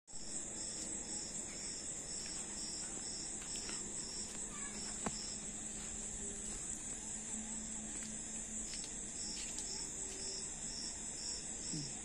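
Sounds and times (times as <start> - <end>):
crickets trilling: 0.1 - 12.0
pulsing insect call: 0.1 - 12.0.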